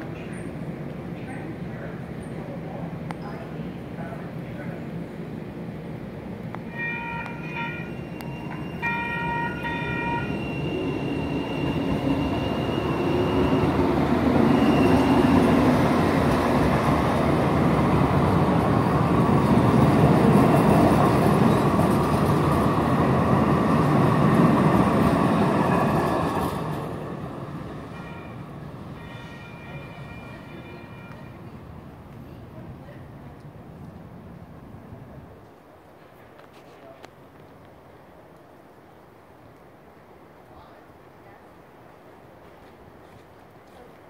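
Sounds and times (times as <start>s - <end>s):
trains rumbling and rattling: 0.0s - 44.0s
railroad crossing bell ringing: 6.7s - 15.6s, 27.8s - 31.7s.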